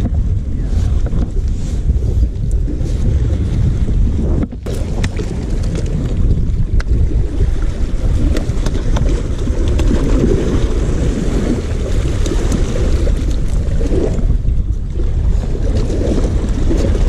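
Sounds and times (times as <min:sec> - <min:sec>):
wind buffeting microphone: 0:00.0 - 0:17.0
water washing against rocks: 0:04.6 - 0:17.0.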